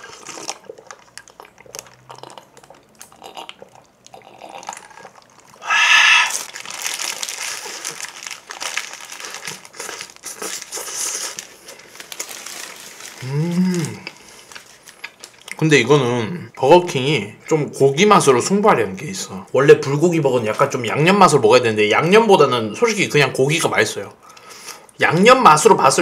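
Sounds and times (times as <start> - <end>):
chewing: 0.0 - 5.6, 9.2 - 15.6
paper wrapper crinkling: 6.2 - 15.5.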